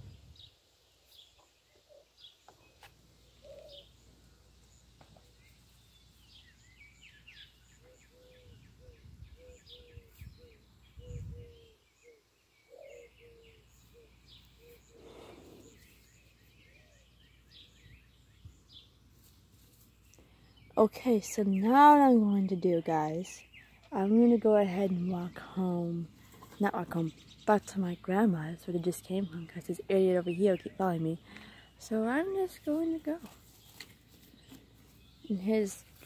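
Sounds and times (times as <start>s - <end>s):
low repeated bird notes: 0.0s - 19.0s
birds chirping: 0.0s - 36.0s.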